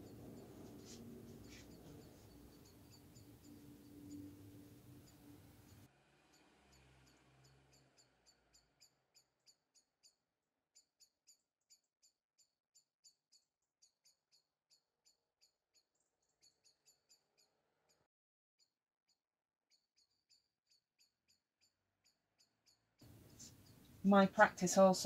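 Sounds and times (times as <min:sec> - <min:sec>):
faint high-pitched chirps: 0:00.0 - 0:10.2.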